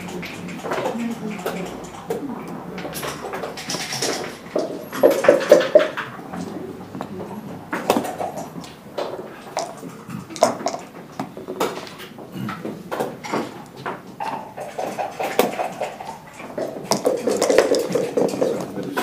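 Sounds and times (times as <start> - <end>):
game checkers clicking on board: 0.0 - 19.0.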